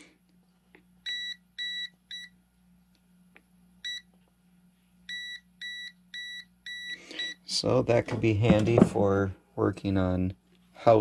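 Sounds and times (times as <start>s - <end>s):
voltage detector beeping: 1.0s - 2.3s, 3.8s - 4.1s, 5.1s - 7.4s.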